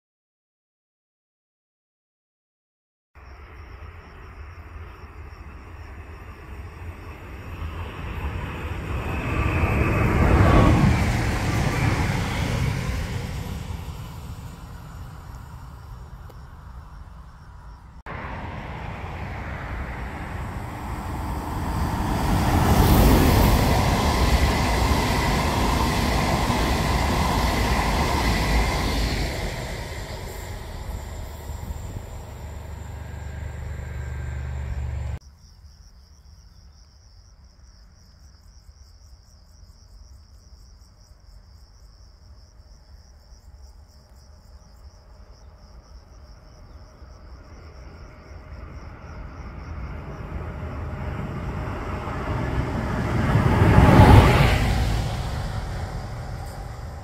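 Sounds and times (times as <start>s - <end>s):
train passing at speed: 3.2s - 35.2s, 43.5s - 57.0s
crickets chirping: 3.2s - 57.0s.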